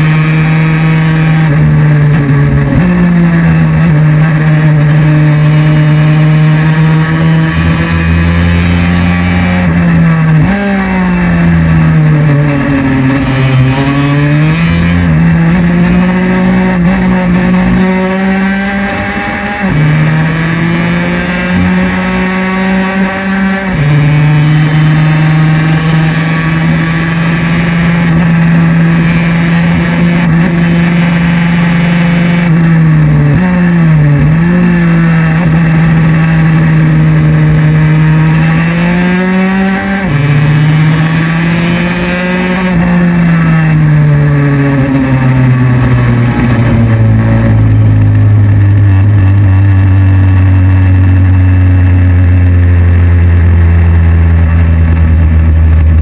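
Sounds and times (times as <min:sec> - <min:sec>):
scooter engine running hard: 0:42.7 - 0:56.0.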